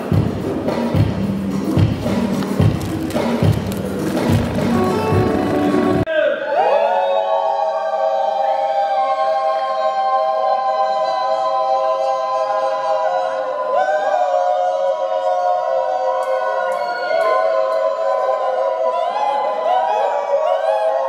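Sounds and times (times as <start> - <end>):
group of voices singing: 4.6 - 21.0.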